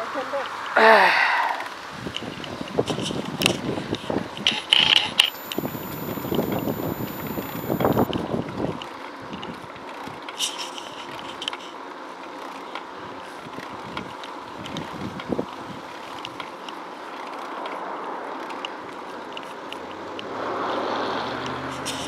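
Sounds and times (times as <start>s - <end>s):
bicycle clicks and rattles: 1.7s - 20.3s
wind rushing over microphone: 1.8s - 8.8s, 13.5s - 15.9s.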